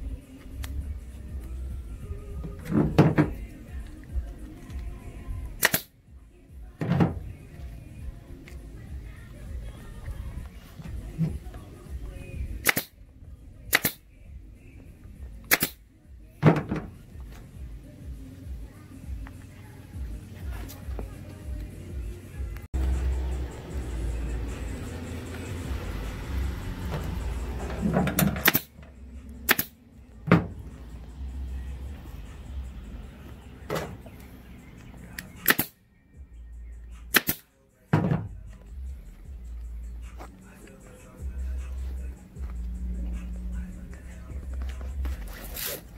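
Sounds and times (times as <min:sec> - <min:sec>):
staple gun snaps: 0:05.6 - 0:05.9, 0:12.6 - 0:12.9, 0:13.7 - 0:14.0, 0:15.5 - 0:15.8, 0:28.4 - 0:28.7, 0:29.5 - 0:29.7, 0:35.4 - 0:35.8, 0:37.2 - 0:37.4
pneumatic staple gun firing: 0:28.1 - 0:28.7, 0:29.5 - 0:29.7.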